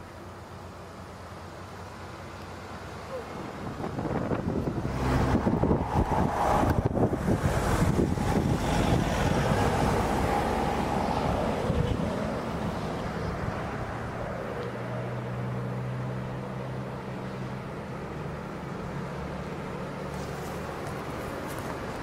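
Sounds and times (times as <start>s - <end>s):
truck engine humming: 0.0s - 22.0s
rushing noise: 3.6s - 14.5s.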